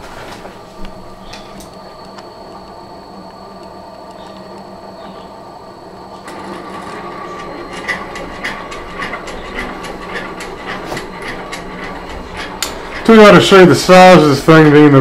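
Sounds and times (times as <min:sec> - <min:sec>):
servo motors humming: 0:00.7 - 0:14.5
regular mechanical clicking: 0:06.2 - 0:13.6.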